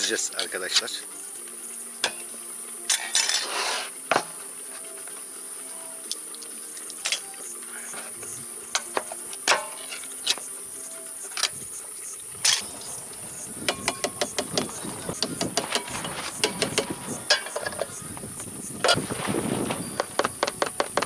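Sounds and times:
can opener scraping: 2.9s - 4.0s.

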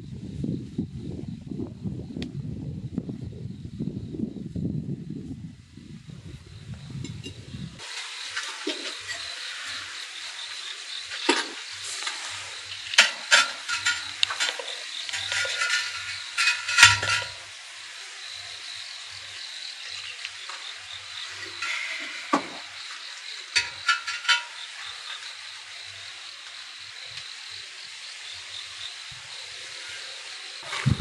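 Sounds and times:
ceramic jar scraping on kiln shelf: 11.2s - 17.4s, 21.4s - 22.8s, 23.6s - 24.7s
gritty crunching: 11.2s - 17.4s.

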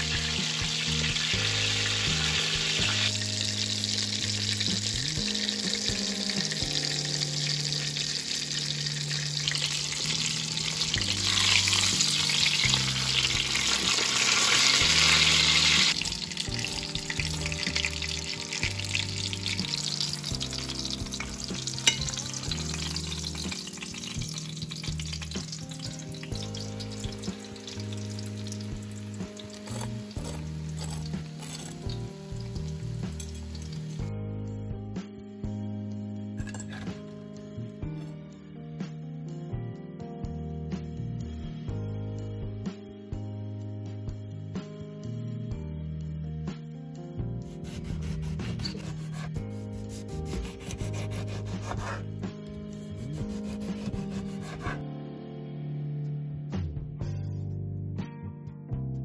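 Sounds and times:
chicken frying in oil: 0.0s - 34.1s, 52.8s - 54.8s.

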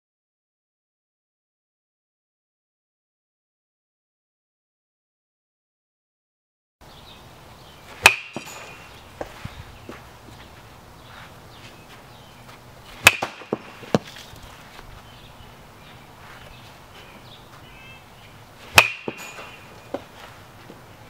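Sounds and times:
baseball bat cracking a ball: 7.9s - 10.5s, 13.0s - 14.9s, 18.6s - 20.9s.

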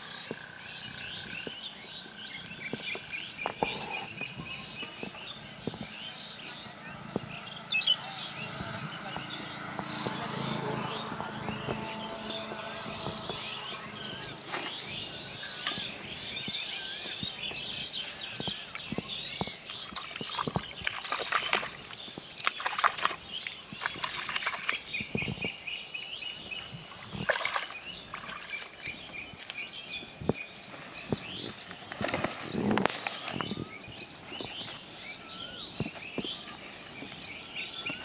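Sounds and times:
small birds chirping: 0.0s - 38.0s
water splashes: 8.2s - 25.5s, 26.6s - 29.6s.

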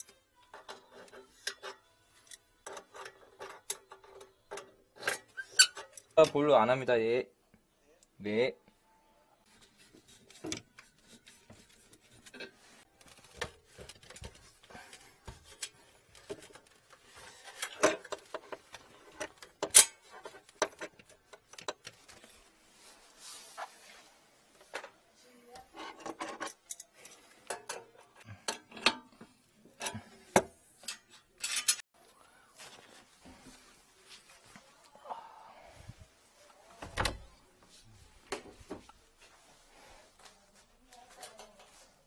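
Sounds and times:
tools clinking on brass fittings: 30.8s - 31.8s.

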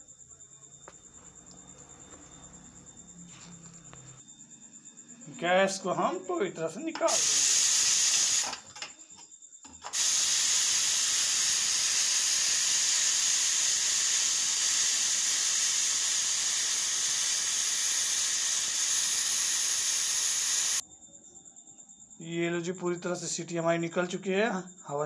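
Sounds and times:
steam hissing from pressure cooker: 7.0s - 8.6s, 9.8s - 20.8s.

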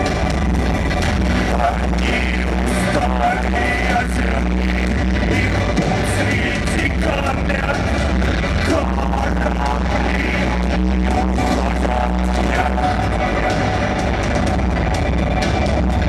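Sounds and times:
rock band playing: 0.0s - 16.0s
man singing into microphone: 1.4s - 13.6s.

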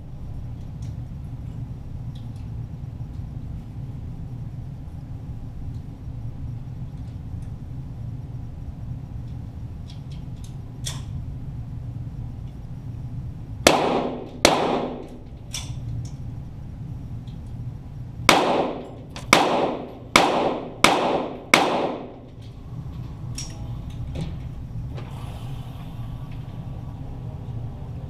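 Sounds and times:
pistol shots echoing: 13.7s - 15.2s, 18.3s - 22.2s.

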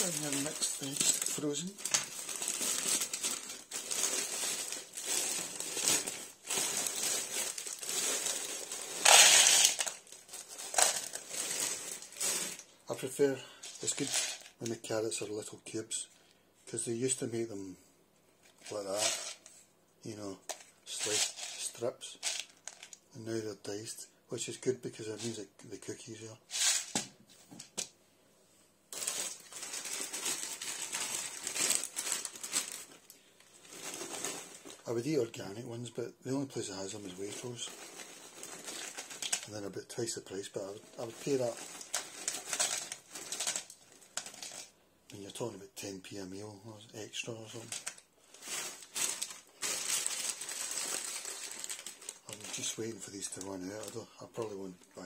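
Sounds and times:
frozen vegetables pouring into bowl: 0.0s - 12.6s, 29.0s - 32.9s, 41.0s - 43.8s
plastic bag crinkling: 0.0s - 12.9s, 13.6s - 14.6s, 28.9s - 35.0s, 36.8s - 44.7s, 47.4s - 55.0s.

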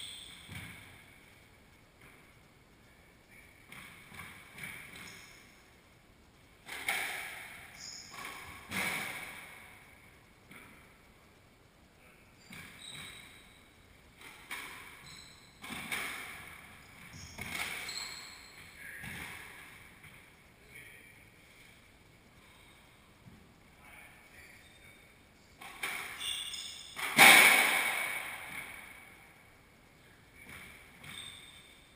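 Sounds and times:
sneakers squeaking on floor: 0.0s - 1.0s, 3.3s - 5.5s, 6.7s - 9.4s, 12.4s - 20.2s, 25.6s - 27.4s, 30.4s - 31.9s
squash ball hits echoing: 6.6s - 9.7s, 27.0s - 29.2s.

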